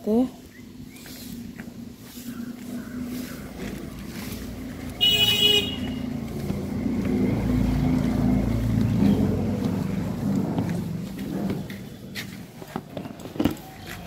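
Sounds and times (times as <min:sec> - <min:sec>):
motor vehicle rumble: 0:00.0 - 0:14.0
vehicle horn toot: 0:05.0 - 0:06.1.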